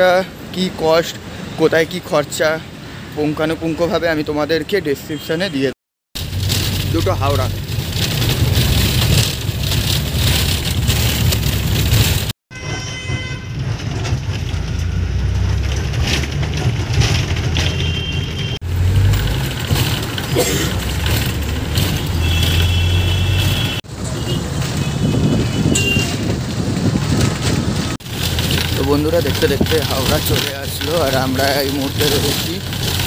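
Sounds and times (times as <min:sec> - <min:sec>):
bus engine and road rumble: 0:06.2 - 0:33.0
vehicle horns honking: 0:12.5 - 0:13.6, 0:17.6 - 0:18.6, 0:22.1 - 0:26.3.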